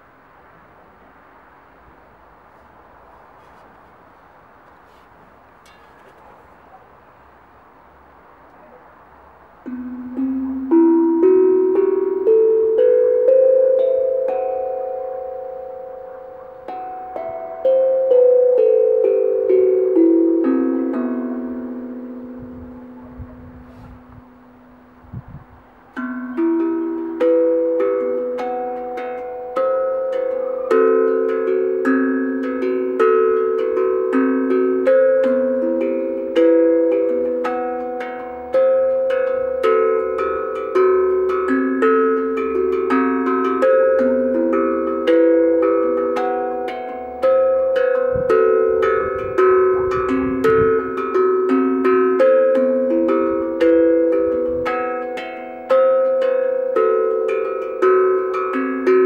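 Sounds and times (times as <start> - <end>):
steel tongue drum melody: 2.5 - 59.0.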